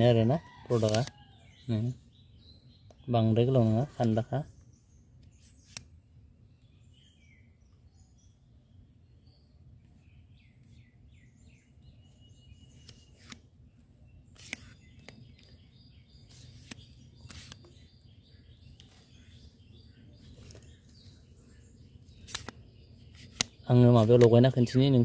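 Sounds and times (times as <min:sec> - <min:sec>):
faint songbirds chirping: 0:00.0 - 0:25.0
outdoor background noise: 0:00.0 - 0:25.0
selfie stick clicks: 0:00.7 - 0:01.2, 0:05.2 - 0:05.9, 0:12.8 - 0:13.5, 0:14.3 - 0:15.6, 0:16.2 - 0:17.9, 0:22.0 - 0:24.4.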